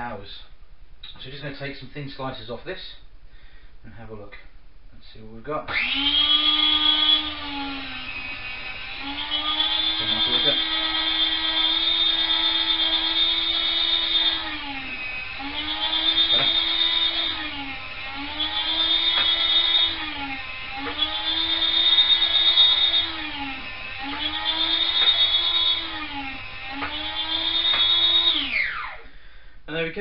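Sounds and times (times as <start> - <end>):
meat slicer motor whining: 5.7 - 29.1.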